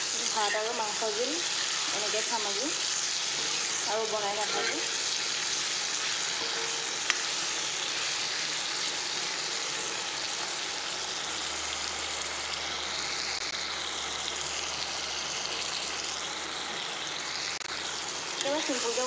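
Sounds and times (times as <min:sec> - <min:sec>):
spatula stirring in wok: 0:00.0 - 0:08.9
food frying in oil: 0:00.0 - 0:19.0.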